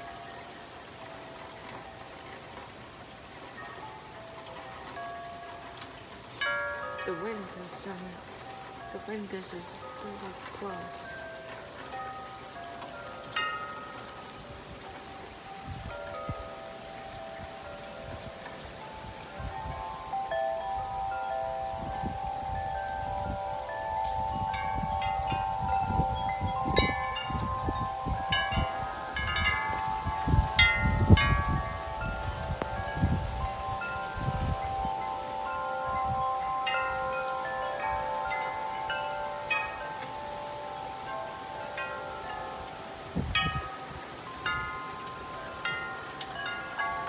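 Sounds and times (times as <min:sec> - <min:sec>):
metal tube wind chime ringing: 0:03.5 - 0:47.0
wind gusts on microphone: 0:14.4 - 0:16.6, 0:17.2 - 0:38.7, 0:42.6 - 0:47.0.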